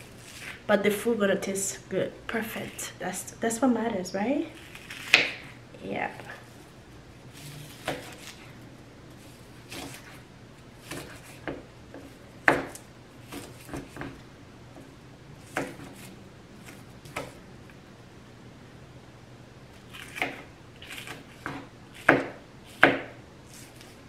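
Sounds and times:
knife chopping on cutting board: 4.7s - 5.5s, 7.7s - 8.4s, 9.7s - 10.2s, 10.8s - 14.2s, 14.8s - 17.4s, 20.0s - 23.9s.

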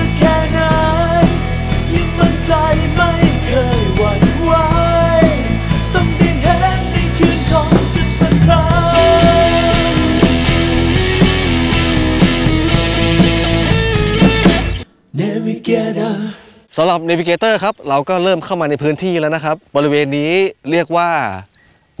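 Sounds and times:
rock song with singing: 0.0s - 16.7s.

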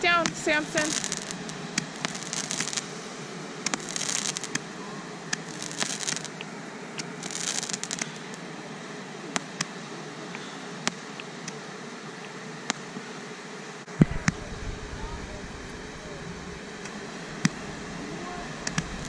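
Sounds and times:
firework cracks: 0.0s - 8.5s, 12.2s - 13.0s, 13.9s - 19.0s
firework hissing bursts: 0.0s - 8.6s, 13.9s - 19.0s.

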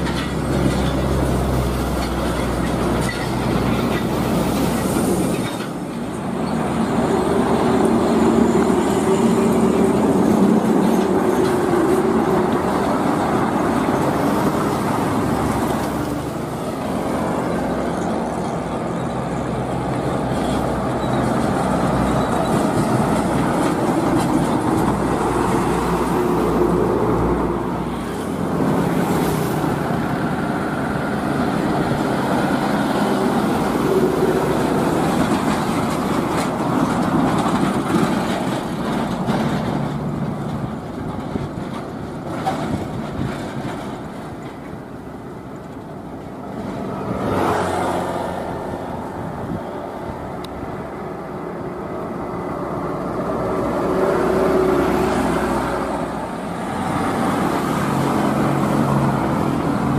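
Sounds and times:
diesel trucks driving past: 0.0s - 59.9s.

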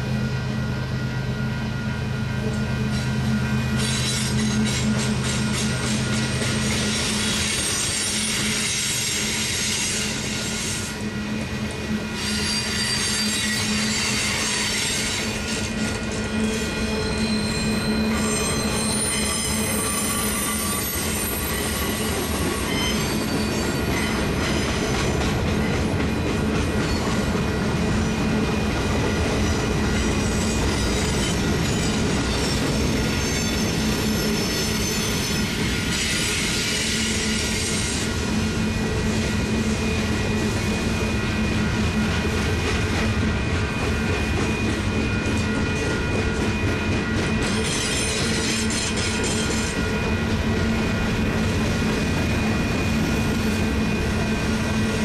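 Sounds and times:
train wheels rumbling on rail: 0.0s - 55.0s
high-pitched wheel squeal: 2.9s - 11.0s, 12.1s - 24.9s, 29.4s - 38.2s, 44.5s - 50.1s.

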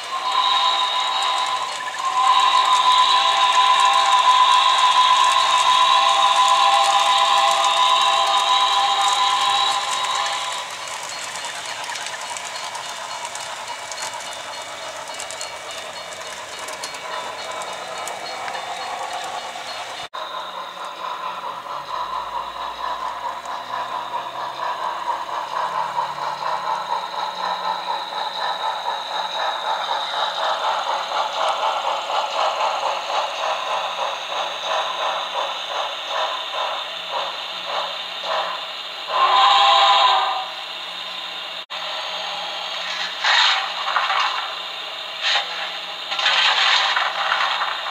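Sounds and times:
train whistle blast: 0.0s - 11.2s, 39.1s - 40.6s
steam locomotive chuffing: 0.0s - 47.9s
train running noise: 0.0s - 47.9s.

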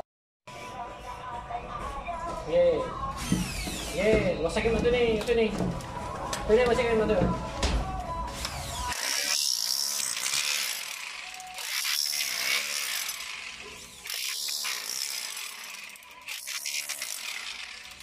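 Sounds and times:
hand tool rasping: 8.4s - 18.0s.

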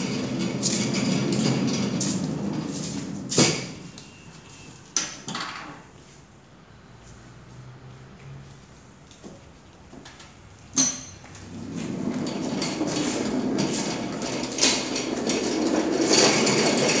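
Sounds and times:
pallet truck rattling: 0.0s - 4.0s, 11.4s - 17.0s.

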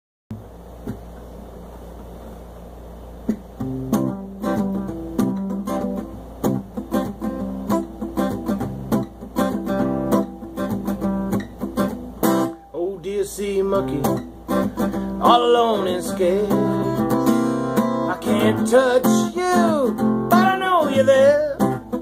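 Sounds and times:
acoustic guitar strumming chords: 3.2s - 22.0s.

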